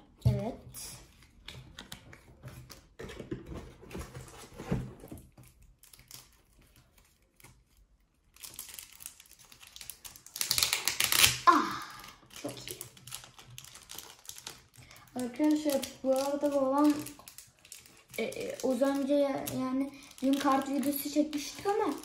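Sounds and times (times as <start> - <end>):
foil packet crackling torn open: 5.4 - 22.0
foil packet handling clicks: 12.3 - 22.0.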